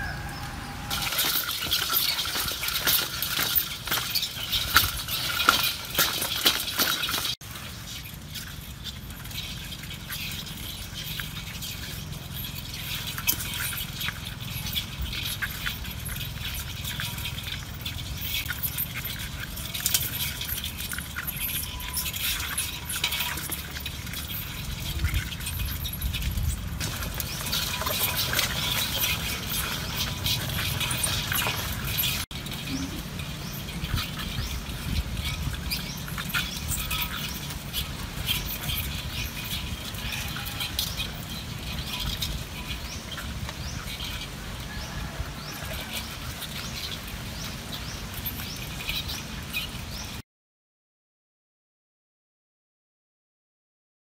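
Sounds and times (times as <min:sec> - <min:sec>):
low rumble: 0:00.0 - 0:01.2
outdoor background noise: 0:00.0 - 0:50.2
clicking and scratching on metal: 0:00.9 - 0:50.1.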